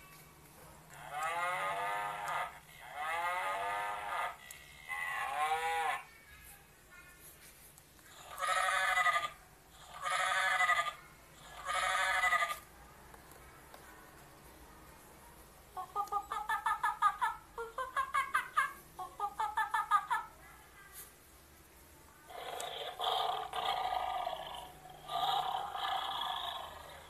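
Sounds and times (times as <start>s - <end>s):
cow mooing from small speaker: 1.0s - 6.0s.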